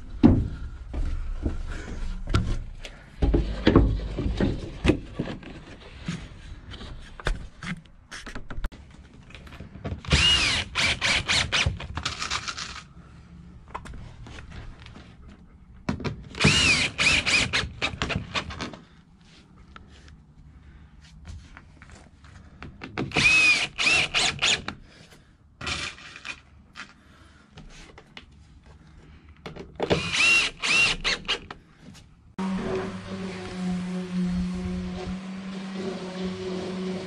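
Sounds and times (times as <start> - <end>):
power drill motor whine: 10.2 - 11.6, 16.4 - 17.6, 23.2 - 24.6, 30.0 - 31.4.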